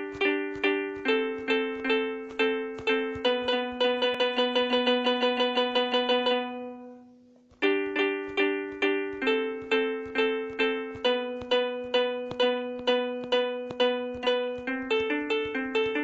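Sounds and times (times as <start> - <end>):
synthesized harp notes: 0.0 - 16.0.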